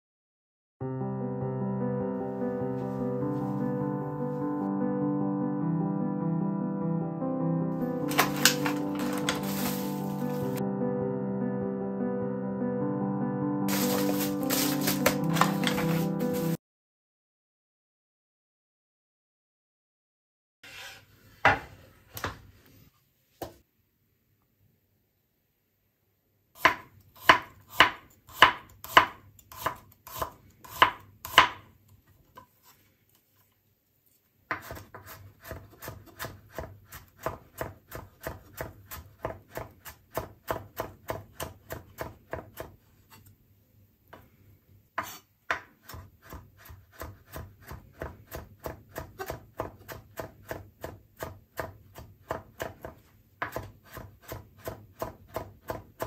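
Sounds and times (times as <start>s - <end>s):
knife chopping on wooden board: 13.7s - 15.9s, 26.6s - 31.6s, 34.5s - 42.8s, 45.0s - 56.0s.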